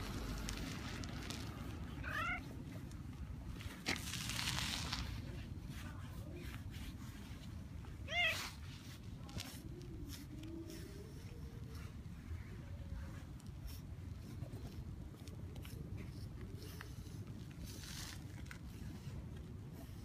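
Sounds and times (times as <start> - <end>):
cat meowing: 2.0 - 2.5, 8.1 - 8.5.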